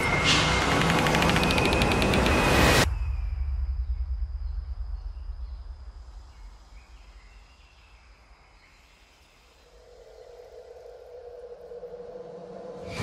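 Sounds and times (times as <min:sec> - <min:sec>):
deep rumble: 0:02.8 - 0:08.0.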